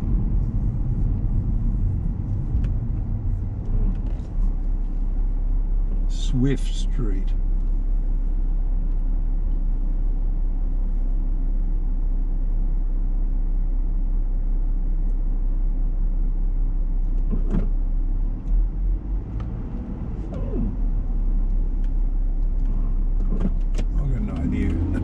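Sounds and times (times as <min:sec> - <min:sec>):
car idling from inside cabin: 0:00.0 - 0:25.0.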